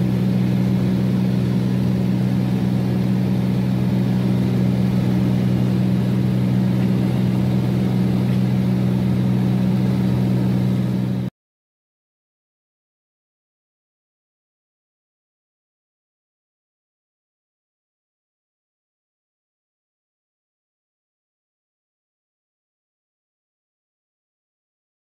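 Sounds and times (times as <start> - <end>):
aircraft engine droning: 0.0 - 11.3.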